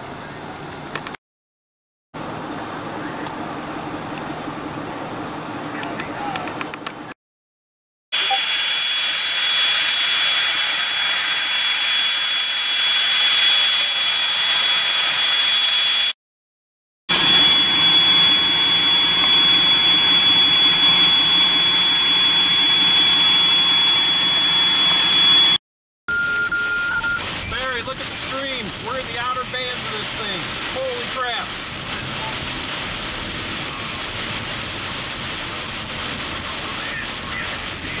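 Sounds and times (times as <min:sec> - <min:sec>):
loud hiss with high whine: 0:08.2 - 0:16.2, 0:17.1 - 0:25.6, 0:27.2 - 0:38.0.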